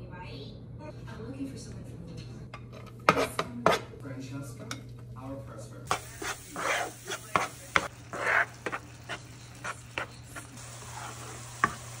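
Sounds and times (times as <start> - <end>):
spatula scraping swishes: 5.9 - 11.8.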